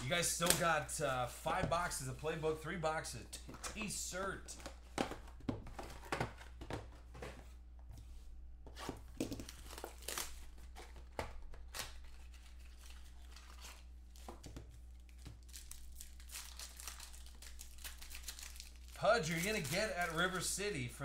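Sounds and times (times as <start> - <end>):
plastic wrapping crinkling: 15.0 - 20.6.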